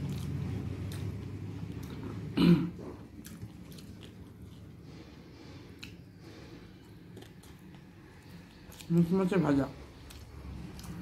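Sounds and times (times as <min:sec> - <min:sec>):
chewing and crunching food: 0:00.0 - 0:11.0
throat clearing: 0:02.3 - 0:03.0.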